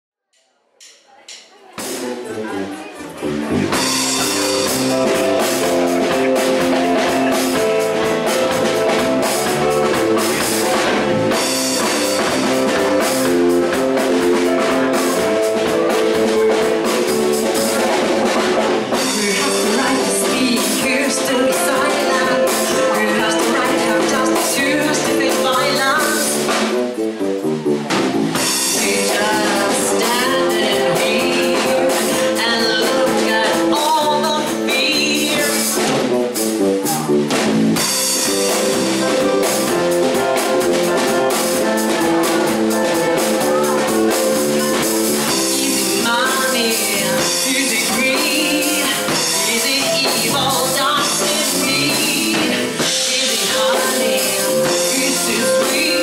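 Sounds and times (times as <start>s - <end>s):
drum kit: 0.3s - 56.0s
keyboard: 0.8s - 56.0s
electric bass: 1.8s - 56.0s
woman singing into a microphone: 19.0s - 26.4s, 28.7s - 35.8s, 43.1s - 56.0s.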